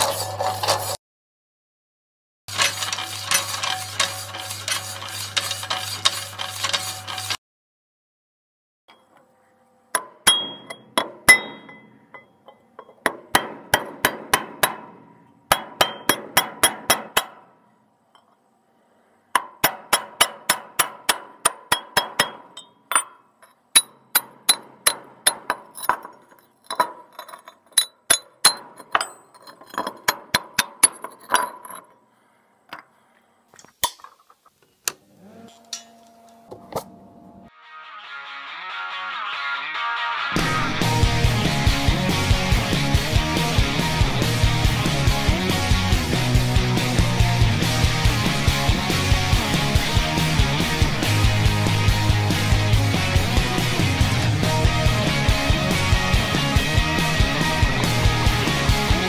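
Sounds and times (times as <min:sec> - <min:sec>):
hammer striking steel rails: 0:10.0 - 0:17.6, 0:19.3 - 0:26.2
music: 0:37.5 - 0:59.0.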